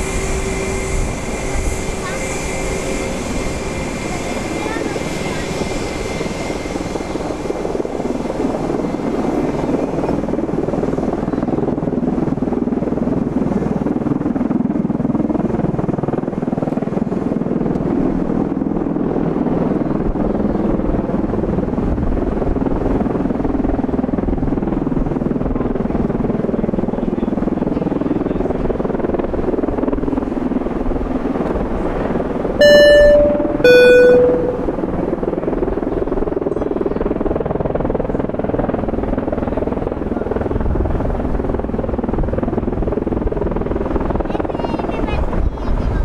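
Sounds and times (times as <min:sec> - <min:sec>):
brief electronic tone: 0:32.6 - 0:34.9.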